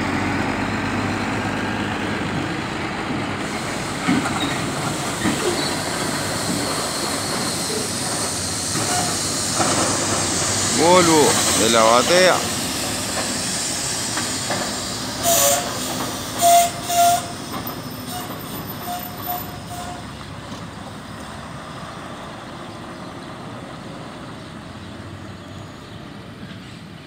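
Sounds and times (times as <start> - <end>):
truck engine and tyre noise: 0.0 - 27.0
air brake hisses: 3.4 - 20.1
brief squeals: 5.2 - 9.6, 16.4 - 20.1.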